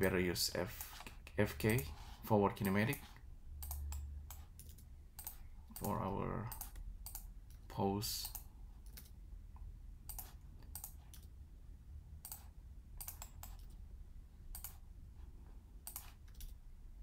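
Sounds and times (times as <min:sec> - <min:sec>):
low steady hum: 0:00.0 - 0:17.0
mouse clicks and key presses: 0:03.6 - 0:11.3, 0:12.2 - 0:13.8, 0:14.5 - 0:14.8, 0:15.8 - 0:16.6.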